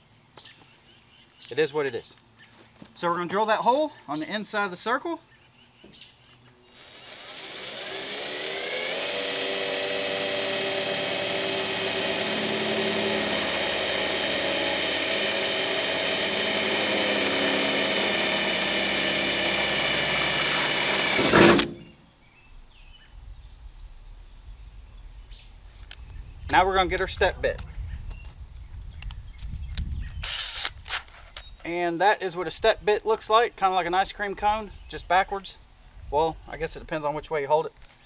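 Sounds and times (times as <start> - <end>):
cordless drill whining: 6.7 - 21.9.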